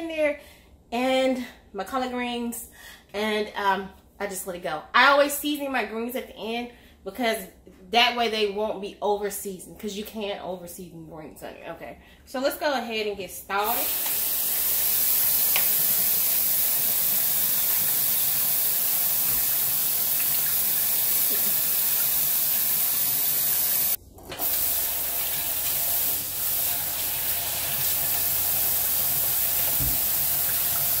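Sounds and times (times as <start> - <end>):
faucet running into metal pot: 13.7 - 31.0.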